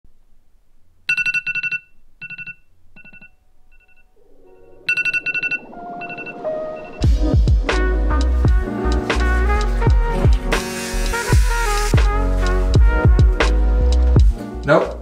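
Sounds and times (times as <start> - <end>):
phone alarm beeping: 1.1 - 7.1
low hum: 1.1 - 9.9
music with rising notes: 4.1 - 14.6.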